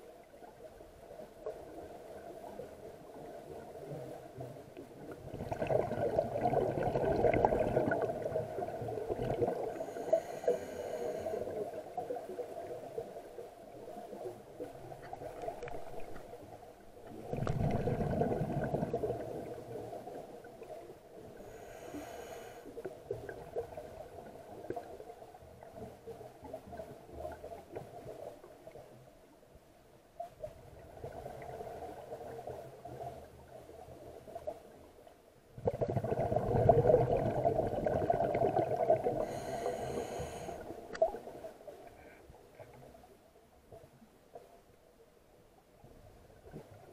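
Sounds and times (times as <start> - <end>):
exhaled air bubbling underwater: 0.0 - 29.0, 35.5 - 42.1
regulator inhale hissing: 9.7 - 11.6, 21.4 - 22.8, 39.2 - 40.8.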